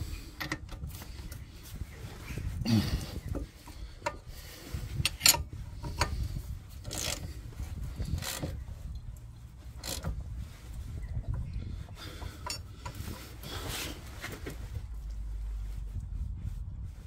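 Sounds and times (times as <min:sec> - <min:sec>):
metallic clicks and knocks: 0:05.0 - 0:06.2
ratchet rasping: 0:05.0 - 0:08.6, 0:09.7 - 0:10.2.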